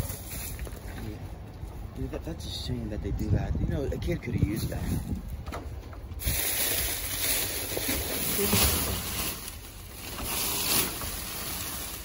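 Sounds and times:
plastic bags rustling: 6.2 - 12.0.

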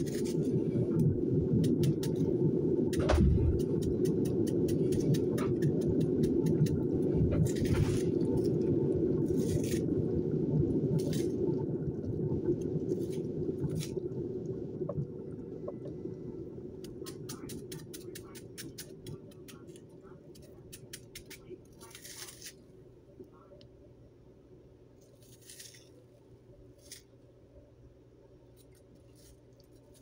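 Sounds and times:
low rumble: 0.0 - 17.6
knife cutting onion: 3.0 - 8.1.

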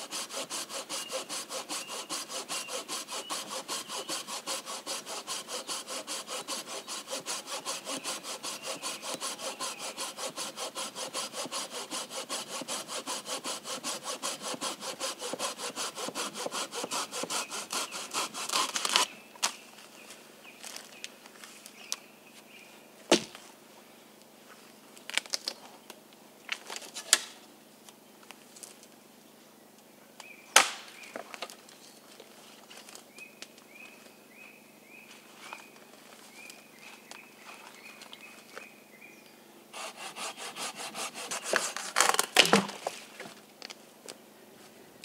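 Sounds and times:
hand saw cutting wood: 0.0 - 19.1, 39.7 - 43.0
dead branches snapping: 41.8 - 43.0.

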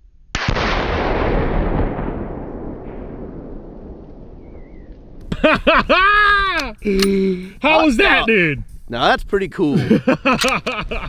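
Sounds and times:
explosion blast with echo: 0.4 - 5.3.

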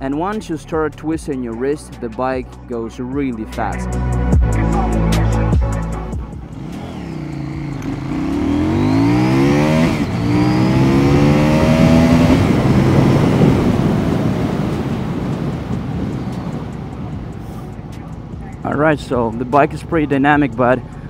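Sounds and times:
motorcycle engine at full throttle: 6.1 - 21.0
wind rush on microphone: 10.0 - 18.4.

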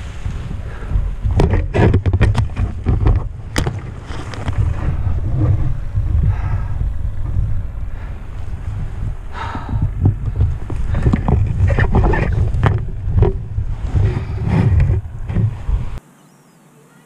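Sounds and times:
sharp knocks and clatters: 1.2 - 6.2, 9.8 - 15.8.

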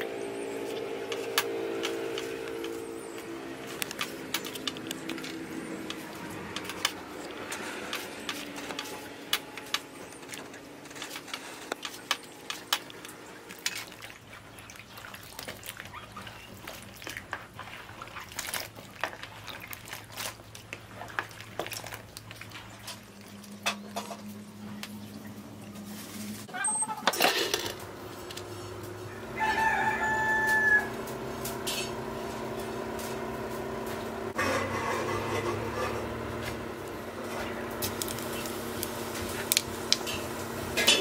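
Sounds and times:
hands swishing eggplant in water: 13.5 - 23.3.

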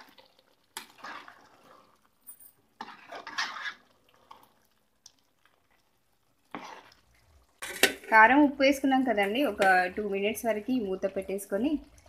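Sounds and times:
spoon scraping pot: 0.0 - 4.5, 6.4 - 8.2.

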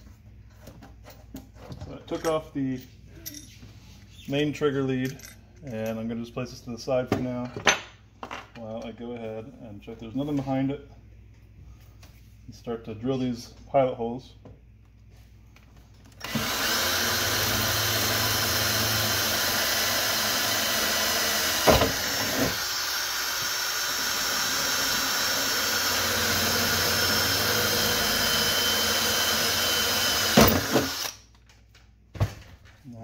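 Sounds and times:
cordless drill boring into metal: 16.2 - 31.2.

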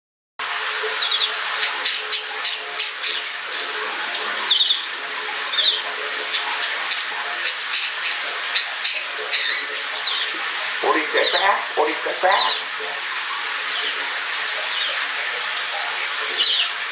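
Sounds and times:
shower water running: 0.4 - 16.9
budgerigar chirping: 6.9 - 10.3.

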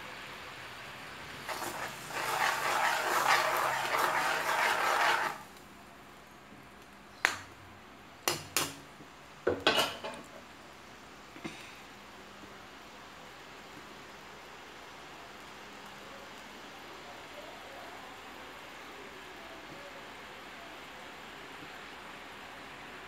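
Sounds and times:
spatula scraping in wok: 1.4 - 5.6.

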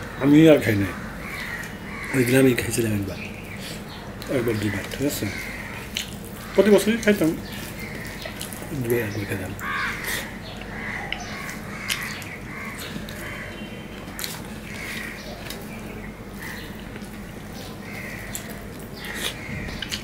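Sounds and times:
bird calling: 0.0 - 20.0
chewing with mouth clicks: 5.8 - 6.5, 7.5 - 8.7, 14.0 - 15.9, 16.6 - 20.0.

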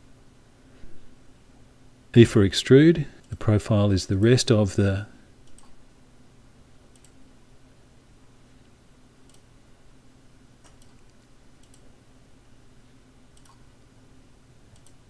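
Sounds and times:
low steady hum: 0.0 - 15.0
computer mouse clicks: 5.4 - 5.8, 6.9 - 7.2, 9.2 - 9.5, 10.6 - 11.9, 13.4 - 13.7, 14.7 - 15.0.

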